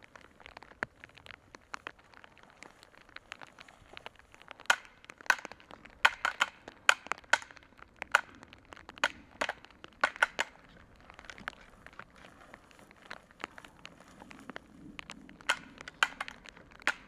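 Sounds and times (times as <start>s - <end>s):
antlers clashing and clacking: 9.0s - 12.3s, 15.4s - 17.0s.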